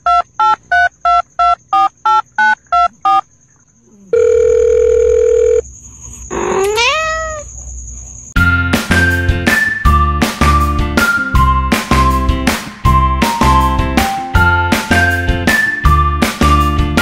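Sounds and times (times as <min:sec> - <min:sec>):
phone keypad beeps: 0:00.0 - 0:03.2
telephone line tone: 0:00.0 - 0:03.2, 0:04.1 - 0:05.6
cat meowing: 0:06.3 - 0:07.5
music: 0:08.4 - 0:17.0.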